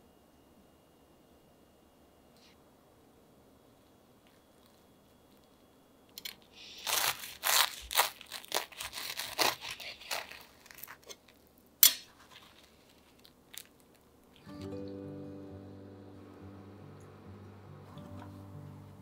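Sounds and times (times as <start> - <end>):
food crunching: 4.3 - 14.5.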